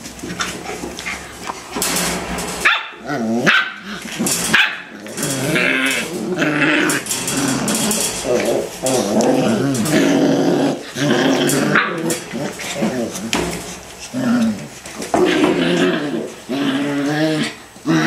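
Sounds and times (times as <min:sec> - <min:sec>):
puppies growling: 0:00.0 - 0:18.0
puppies yipping and barking: 0:00.2 - 0:10.0.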